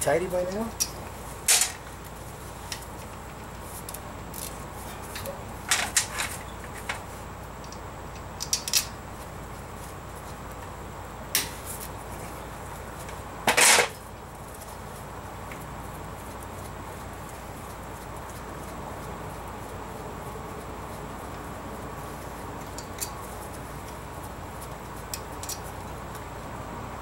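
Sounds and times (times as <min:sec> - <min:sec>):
ratchet clicking: 0:07.6 - 0:08.9, 0:25.1 - 0:25.8
metal hardware clatter: 0:08.4 - 0:08.9.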